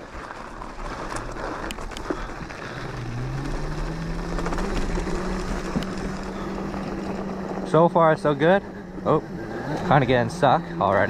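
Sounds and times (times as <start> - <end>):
electric motor whining: 2.2 - 11.0.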